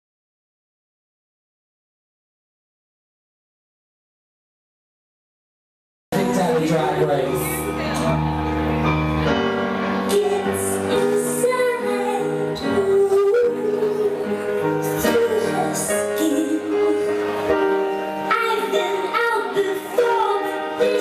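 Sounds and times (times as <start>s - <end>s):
woman singing with instrumental backing: 9.9s - 21.0s.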